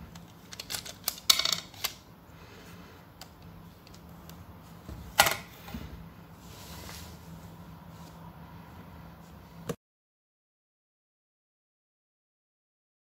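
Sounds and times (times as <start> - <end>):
plastic parts clicking: 0.1 - 2.0.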